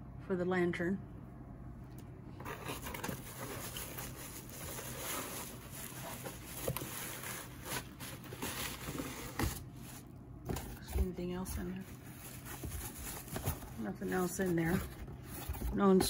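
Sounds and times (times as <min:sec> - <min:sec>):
bubble wrap crinkling: 0:02.4 - 0:10.1, 0:11.6 - 0:15.9.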